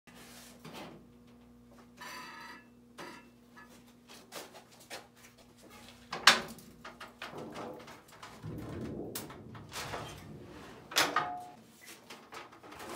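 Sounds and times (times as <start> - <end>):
clicks and knocks: 6.1 - 11.6
metal sheet sliding and rattling: 6.4 - 12.9.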